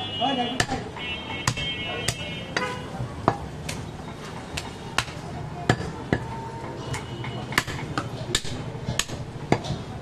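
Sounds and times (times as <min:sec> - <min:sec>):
cleaver chopping on wooden block: 0:00.6 - 0:02.2, 0:07.6 - 0:09.8.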